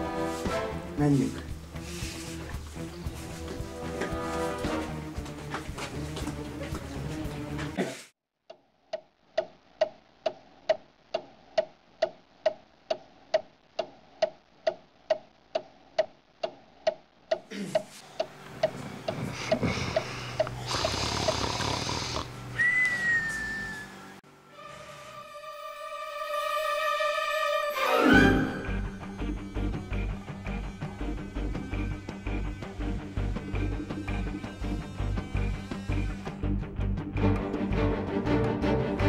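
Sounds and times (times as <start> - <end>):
clock ticking: 8.5 - 20.6
snoring: 18.8 - 22.4
short falling whistle: 22.6 - 24.2.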